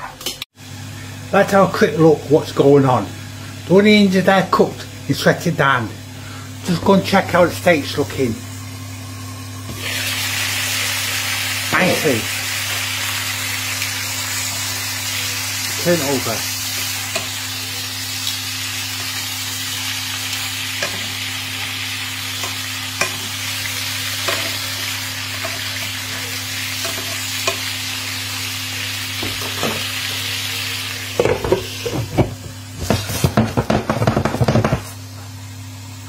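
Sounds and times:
meat sizzling in a pan: 8.4 - 32.6.

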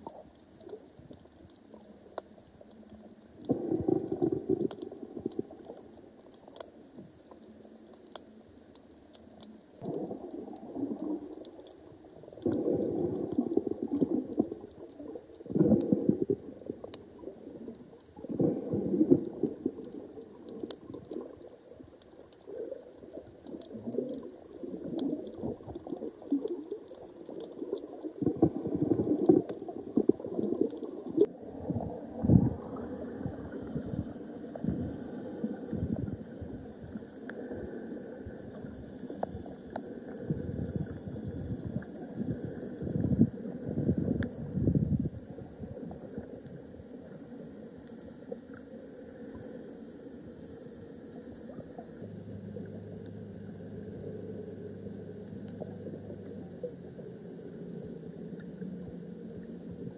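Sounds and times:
crackle of tiny clicks: 0.0 - 59.9
water sloshing underwater: 0.0 - 59.9
steady high hiss: 1.6 - 59.9.

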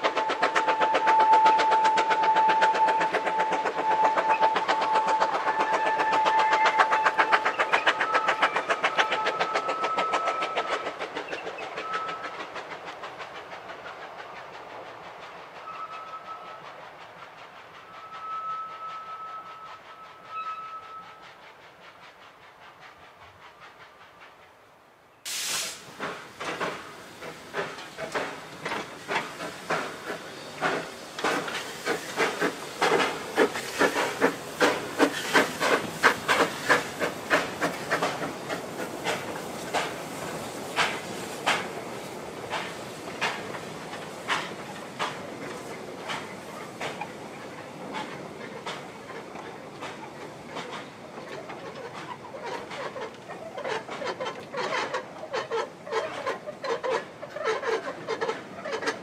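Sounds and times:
steam hiss: 0.0 - 59.0
steam locomotive exhaust beats: 0.0 - 59.0
high whistle tones: 15.6 - 16.6, 17.8 - 21.3.

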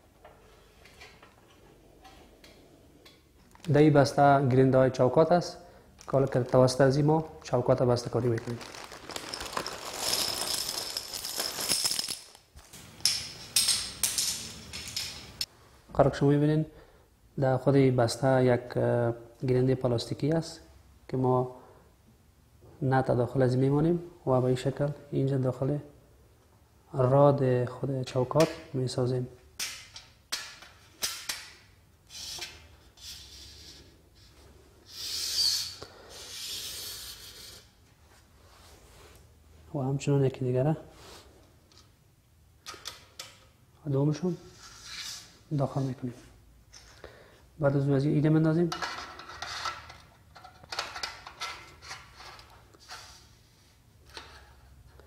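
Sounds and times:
bolts and clamps rattling: 9.3 - 15.5.

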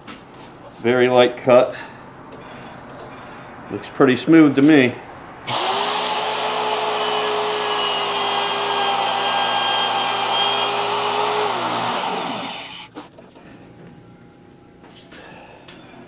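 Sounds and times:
router cutting wood: 5.5 - 12.9
router motor whining: 5.5 - 12.9.

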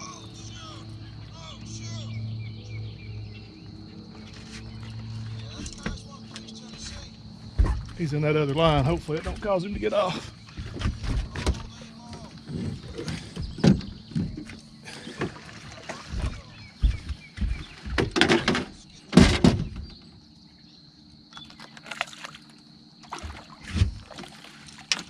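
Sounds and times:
fishing gear knocking and thumping: 8.6 - 15.4, 16.1 - 20.0.

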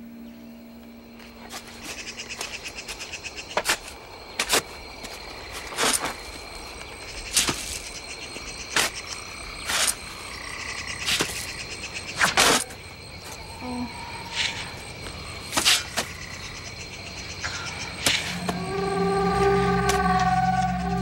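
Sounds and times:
crickets and insects trilling: 0.0 - 21.0.

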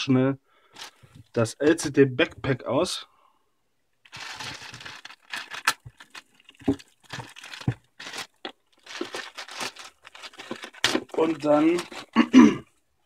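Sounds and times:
plastic bag crinkling and tearing: 0.8 - 1.1, 4.1 - 12.3.

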